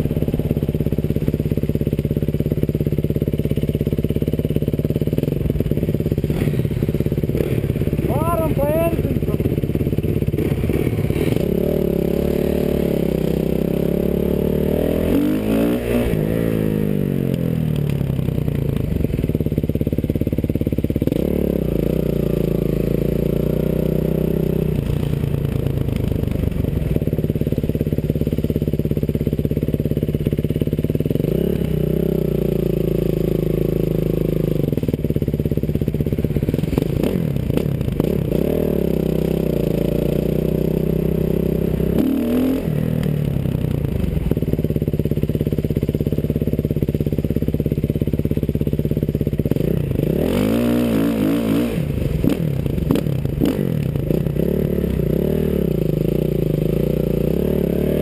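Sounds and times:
dirt bike engine revving: 4.1 - 17.9, 21.0 - 25.2, 36.2 - 43.2, 49.5 - 58.0.

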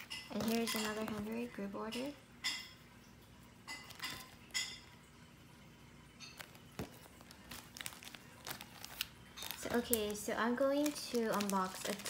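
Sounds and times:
plastic sleeves rustling: 0.0 - 2.1, 3.7 - 4.9, 6.2 - 12.0.

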